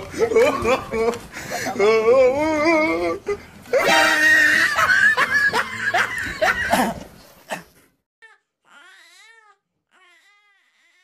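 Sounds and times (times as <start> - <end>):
people laughing loudly: 3.8 - 7.0.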